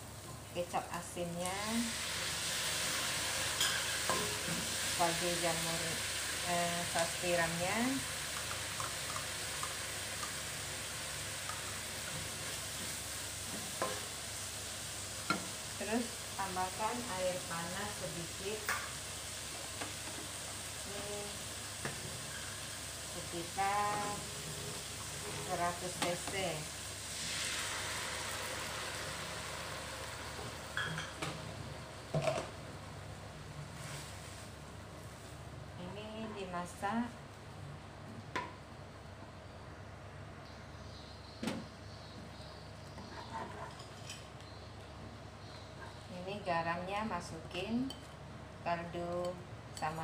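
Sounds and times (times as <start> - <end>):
wok frying sizzle: 0.0 - 39.6
spatula tapping wok: 8.3 - 10.5
dishes clinking: 30.7 - 31.3.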